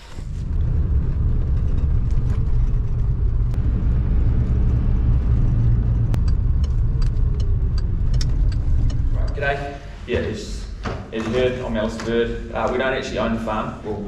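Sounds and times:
car engine and tyre rumble: 0.0s - 10.1s.

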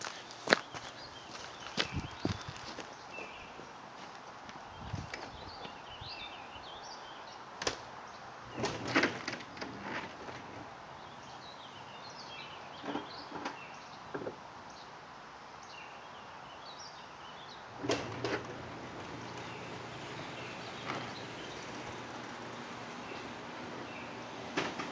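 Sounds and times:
birds chirping: 0.0s - 9.0s, 10.9s - 15.0s, 15.6s - 24.9s
knocks and clatters: 17.8s - 24.9s.

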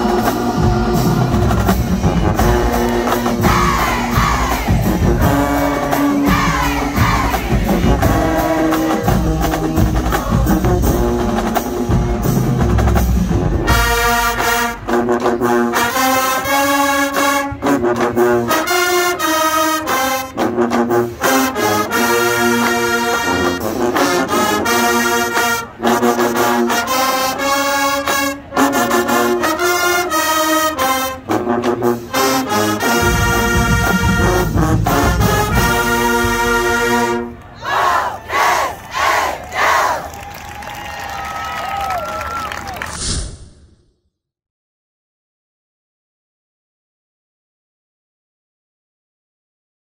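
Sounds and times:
heavy bass: 0.0s - 15.0s
marching band brass playing: 0.0s - 42.8s
crowd noise: 0.0s - 43.6s.

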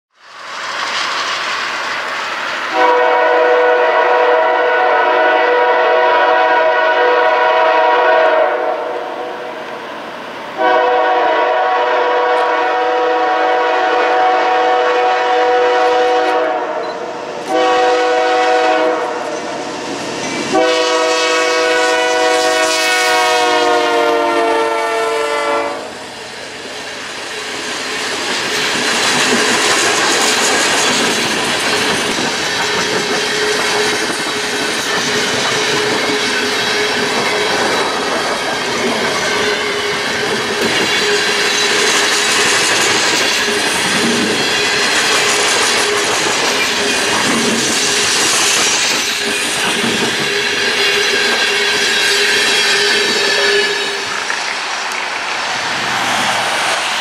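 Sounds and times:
locomotive air horn blasts: 2.7s - 9.4s, 10.6s - 19.5s, 20.5s - 26.0s
train wheels clacking on rails: 26.5s - 57.0s.

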